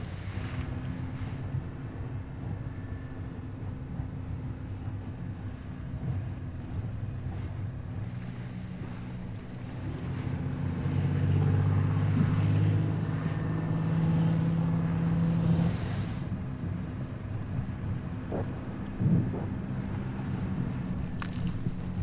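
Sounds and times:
boat engines droning: 0.0s - 22.0s
choppy sea and wind: 0.0s - 22.0s
hiss of spray: 15.4s - 16.3s.

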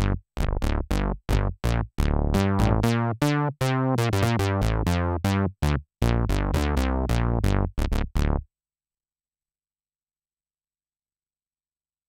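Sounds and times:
synthesizer bass notes: 0.0s - 8.4s.

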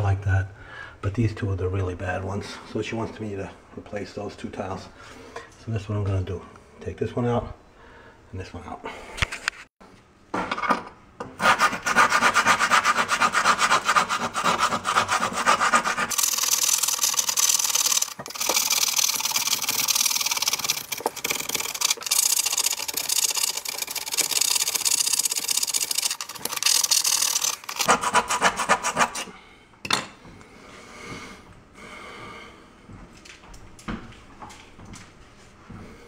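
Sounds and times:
grout saw rasping: 11.3s - 29.3s.

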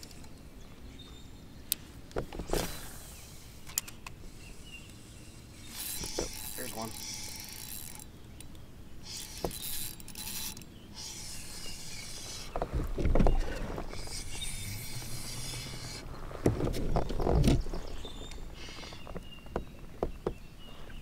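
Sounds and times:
spinning reel cranking: 5.6s - 8.0s, 9.0s - 12.4s.

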